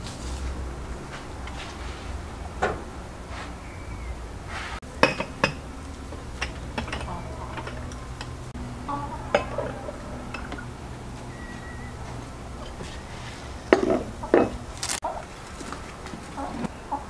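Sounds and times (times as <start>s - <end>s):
low steady hum: 0.0s - 17.0s
tableware clinking: 4.9s - 10.7s, 13.7s - 14.7s.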